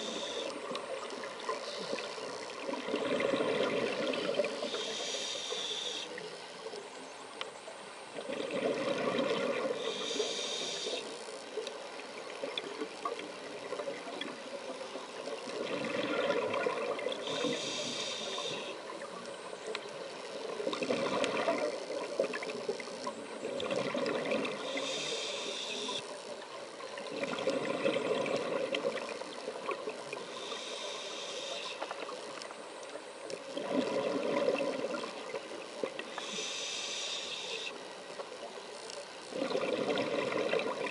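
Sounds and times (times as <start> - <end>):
regulator inhalation hiss: 0.0 - 0.7, 4.4 - 6.7, 9.7 - 11.3, 17.2 - 18.9, 24.6 - 26.2, 30.1 - 32.1, 36.1 - 38.0
bubbling underwater exhalation: 39.4 - 40.9.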